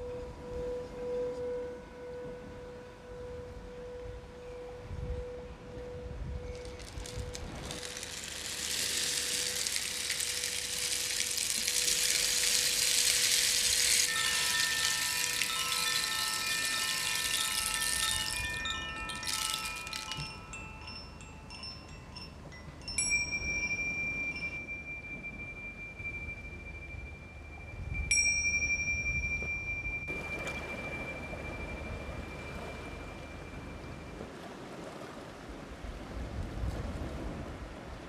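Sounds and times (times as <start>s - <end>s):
wooden chime box ringing: 0.0s - 34.2s
singing bowl ringing: 0.0s - 34.3s
small cymbals ringing: 0.0s - 34.3s
rainstick rushing: 5.2s - 22.0s.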